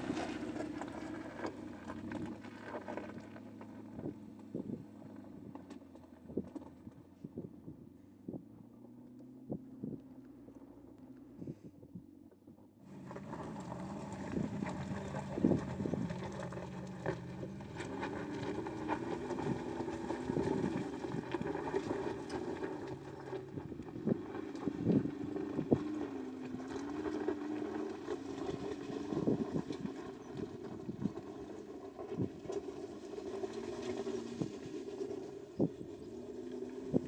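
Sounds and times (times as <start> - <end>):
car engine pulling uphill: 0.0 - 37.0
stones crunching under tyres: 12.9 - 37.0.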